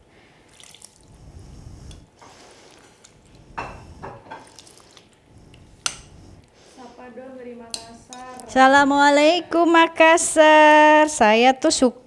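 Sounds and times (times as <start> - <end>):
wet squelching and dripping: 0.4 - 1.2, 4.3 - 5.9.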